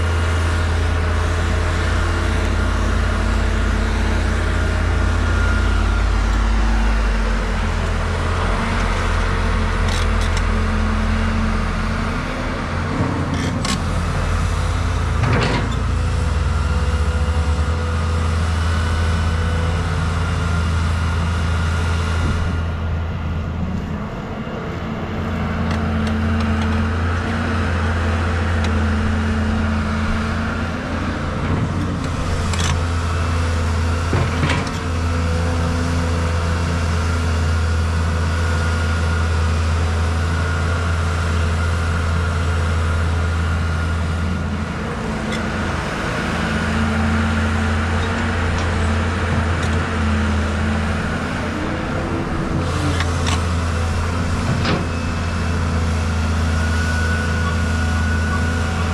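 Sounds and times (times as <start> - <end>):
excavator diesel engine running: 0.0 - 58.9.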